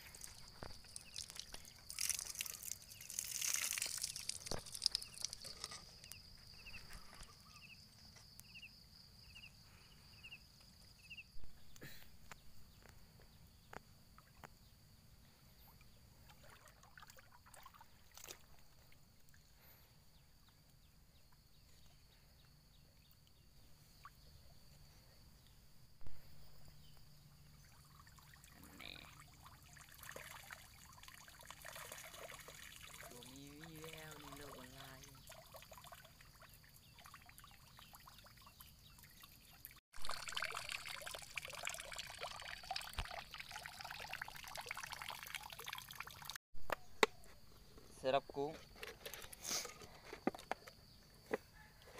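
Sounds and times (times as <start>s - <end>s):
water trickling and splashing: 0.0s - 7.8s, 15.7s - 20.7s, 27.1s - 46.4s.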